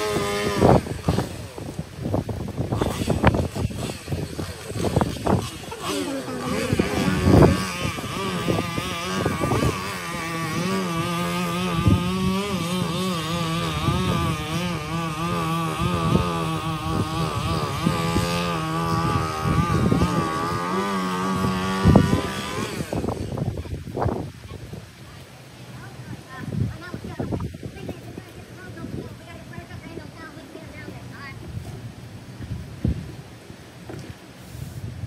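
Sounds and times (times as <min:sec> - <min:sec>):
chainsaw cutting branches: 0:00.0 - 0:24.4.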